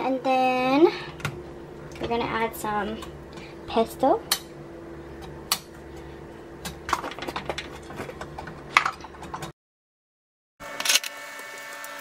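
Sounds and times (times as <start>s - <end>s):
low hum: 0.6s - 9.5s.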